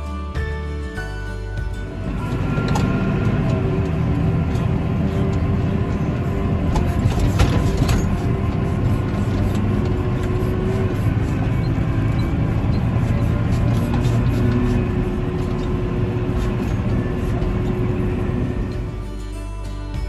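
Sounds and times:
tractor engine running: 0:00.0 - 0:20.0
short knocks and rattles: 0:06.6 - 0:10.4.

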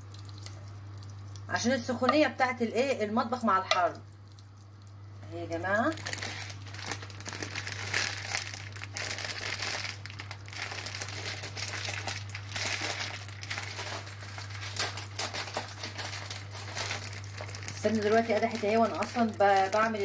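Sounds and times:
ghee crackling and sizzling: 0:00.0 - 0:20.0.

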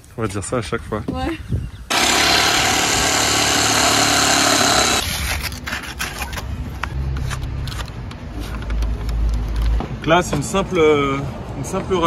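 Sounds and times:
jigsaw cutting wood: 0:01.9 - 0:05.3.

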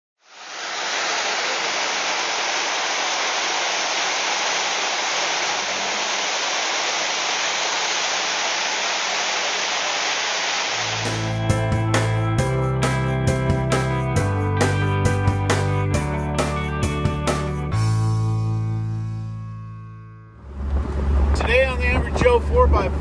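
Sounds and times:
waterfall rushing: 0:00.2 - 0:11.6.

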